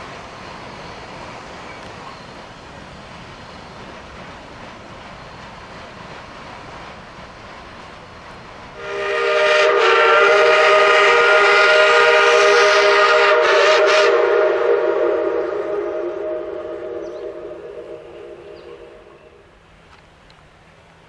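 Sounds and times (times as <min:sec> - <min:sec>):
steam locomotive whistle: 0:08.8 - 0:19.4.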